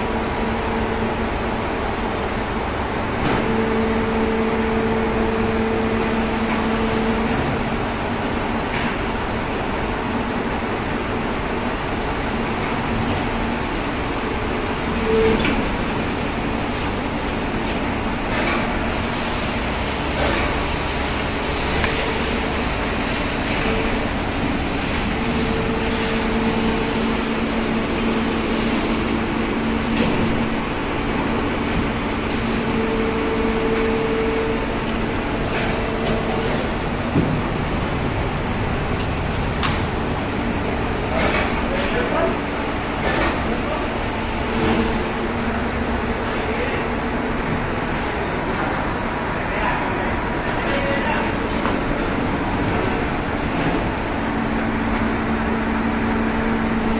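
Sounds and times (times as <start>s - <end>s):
machine hum: 18.8s - 43.1s.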